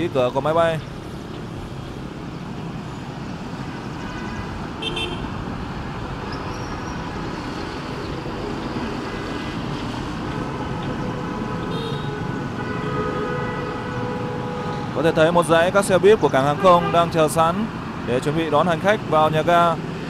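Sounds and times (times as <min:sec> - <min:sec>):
vehicle engines rumbling: 0:00.0 - 0:20.0.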